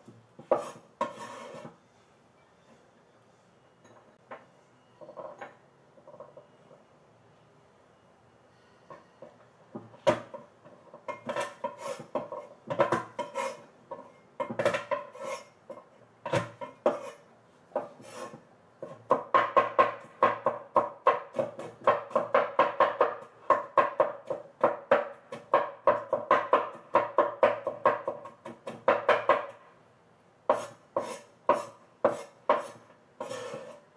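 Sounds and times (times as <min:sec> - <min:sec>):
cleaver chopping on cutting board: 0:30.5 - 0:33.7.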